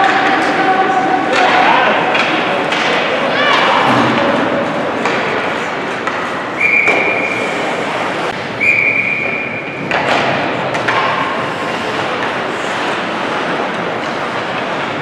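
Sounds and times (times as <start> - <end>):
referee's whistle blasts: 6.6 - 7.5, 8.6 - 9.7
sharp knocks from play on ice: 9.8 - 11.6.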